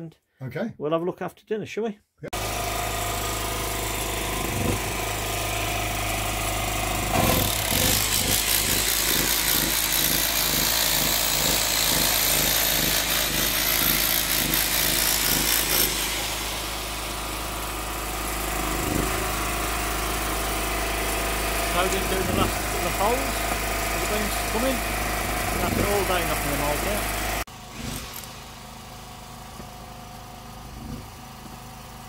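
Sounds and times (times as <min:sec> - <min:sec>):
demolition hammer chiselling stone: 0:02.4 - 0:16.4, 0:18.2 - 0:28.4.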